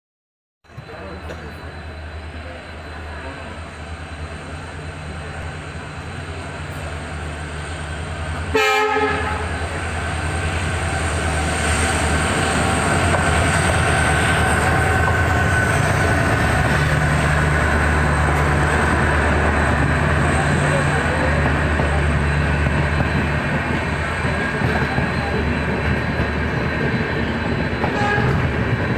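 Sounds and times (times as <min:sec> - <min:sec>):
train running noise: 0:00.6 - 0:28.9
locomotive engine: 0:00.7 - 0:28.9
locomotive horn blast: 0:08.4 - 0:09.6, 0:27.9 - 0:28.5.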